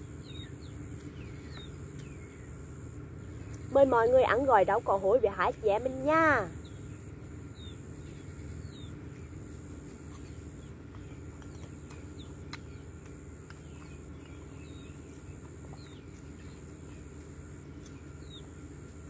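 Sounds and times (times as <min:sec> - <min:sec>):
faint bird chirps: 0:00.0 - 0:04.3
steady low background noise: 0:00.0 - 0:19.0.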